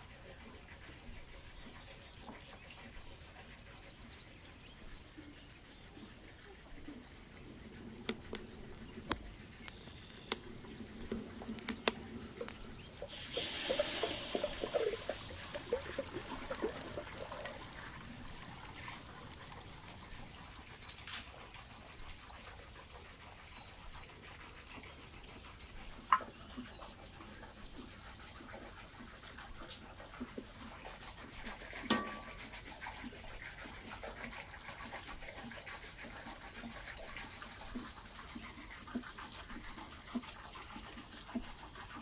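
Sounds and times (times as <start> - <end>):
water hissing and splashing: 7.4 - 26.7
sharp clicks: 8.0 - 12.8.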